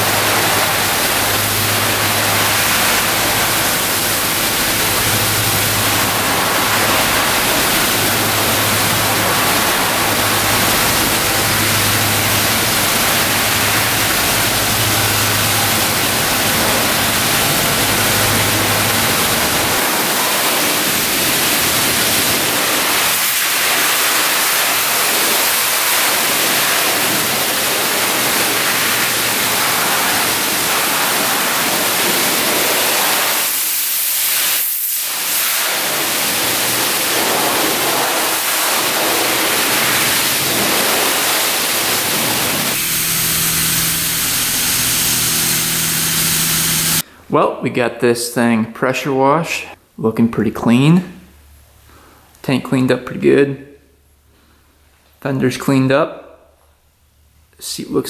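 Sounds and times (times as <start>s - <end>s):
low hum: 0.0s - 22.5s, 39.4s - 47.2s
pressure washer spray hissing: 0.0s - 47.0s.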